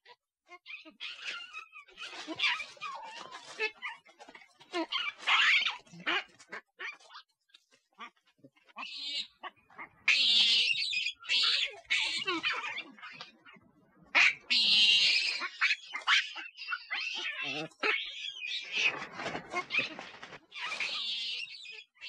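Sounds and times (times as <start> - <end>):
monkey calling shrilly: 10.1 - 13.2.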